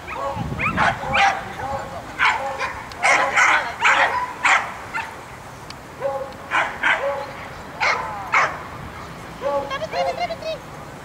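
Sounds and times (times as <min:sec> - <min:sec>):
dog barking: 0:00.1 - 0:05.2, 0:06.0 - 0:08.6, 0:09.4 - 0:09.7.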